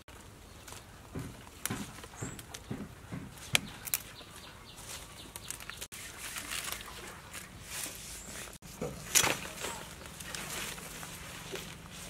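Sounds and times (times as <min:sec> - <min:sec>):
flower stems snapping: 0:03.4 - 0:04.3.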